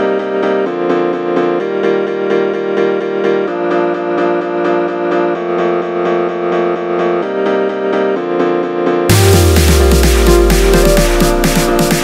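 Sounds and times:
repeated chords music: 0:00.0 - 0:12.0.

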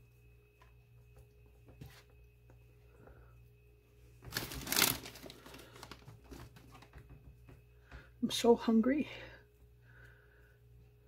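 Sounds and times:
lettuce rustling: 0:04.2 - 0:06.8
crinkling rustle: 0:04.2 - 0:07.0.

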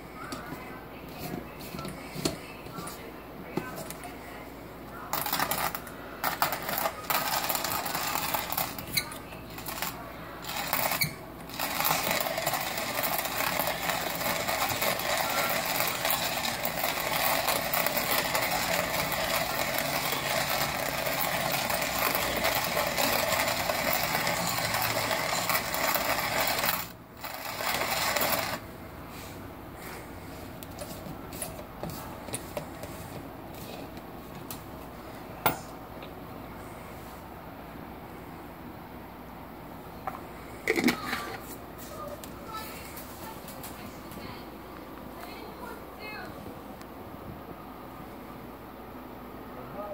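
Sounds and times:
hand coffee grinder crunching beans: 0:05.2 - 0:09.0, 0:09.6 - 0:28.6.

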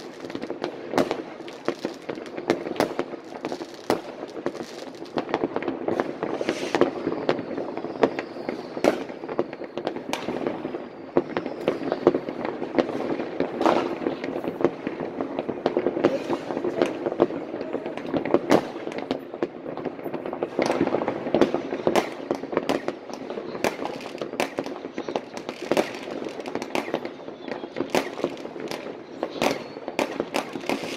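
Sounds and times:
firecrackers banging and crackling: 0:00.0 - 0:30.9
faint falling whistles: 0:06.4 - 0:12.3.

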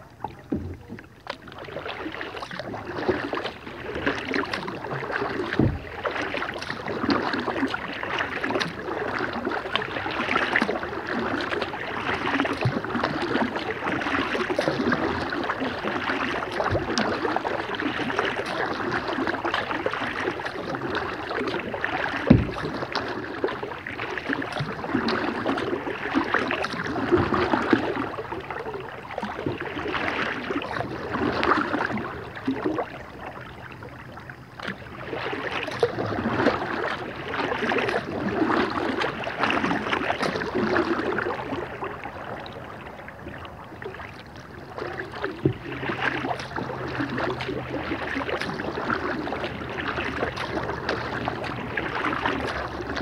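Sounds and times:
water splashing from paddling: 0:00.0 - 0:53.0
dull knocks on kayak: 0:05.5 - 0:05.9, 0:22.2 - 0:22.8.

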